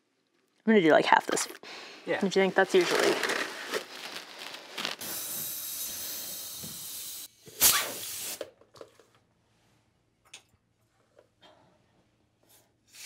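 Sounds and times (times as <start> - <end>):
air hissing out of tire valve: 5.0 - 8.5.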